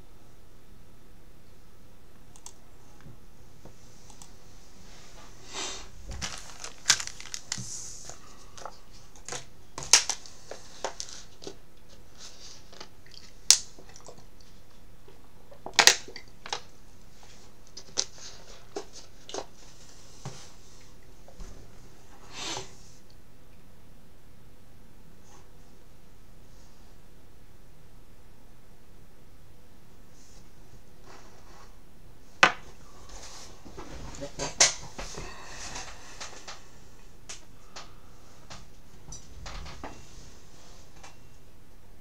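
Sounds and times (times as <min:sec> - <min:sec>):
shrink wrap crinkling and tearing: 0:06.1 - 0:08.2.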